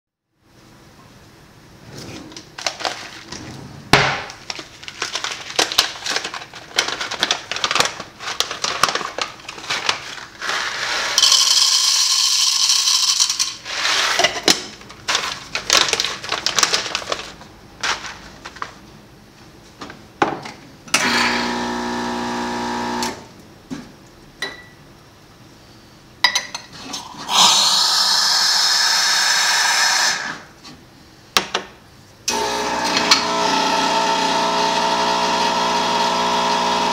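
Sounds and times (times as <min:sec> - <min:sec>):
pump humming: 0:21.0 - 0:23.2, 0:32.3 - 0:36.9
espresso machine steam hiss: 0:27.2 - 0:30.3.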